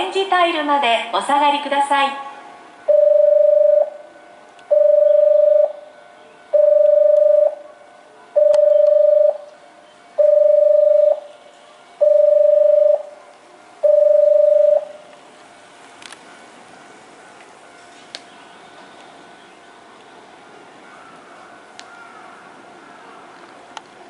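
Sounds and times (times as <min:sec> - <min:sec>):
platform warning alarm beeping: 0:02.8 - 0:04.1, 0:04.7 - 0:05.9, 0:06.5 - 0:07.7, 0:08.4 - 0:09.5, 0:10.2 - 0:11.4, 0:12.0 - 0:13.1, 0:13.8 - 0:15.0.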